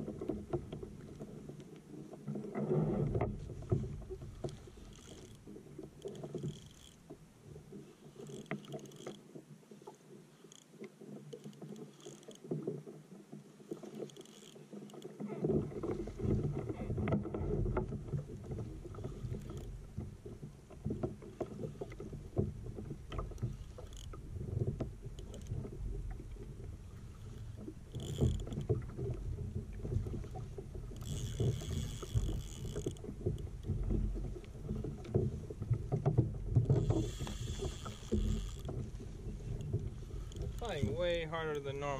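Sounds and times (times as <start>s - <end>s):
fishing reel clicking: 4.8s - 5.4s, 6.0s - 7.0s, 8.2s - 9.2s, 11.3s - 12.4s, 14.0s - 15.0s, 31.0s - 33.0s, 36.8s - 38.7s
water slapping against plastic hull: 14.6s - 26.8s, 27.5s - 41.8s.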